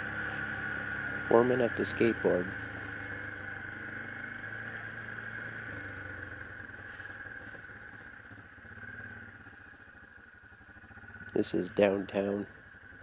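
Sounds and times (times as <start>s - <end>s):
quad bike engine running: 0.0s - 13.0s.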